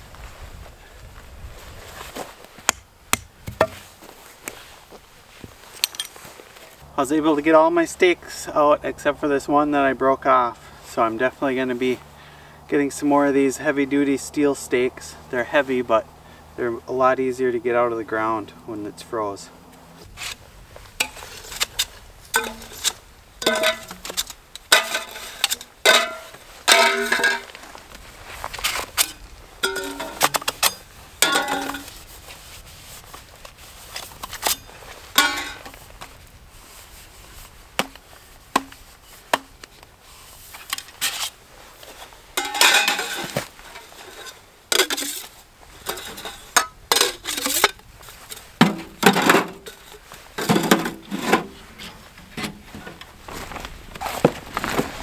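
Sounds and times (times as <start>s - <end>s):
metal camping gear clinking: 5.6s - 6.4s, 21.0s - 27.8s, 28.5s - 32.1s, 33.4s - 35.9s, 40.5s - 54.8s.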